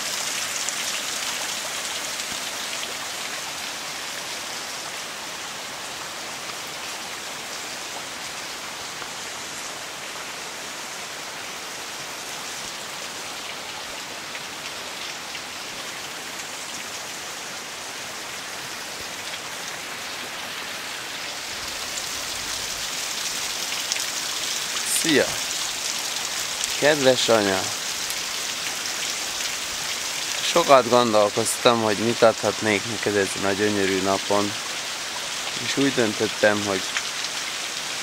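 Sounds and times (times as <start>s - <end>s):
falling water hissing: 19.9s - 38.0s.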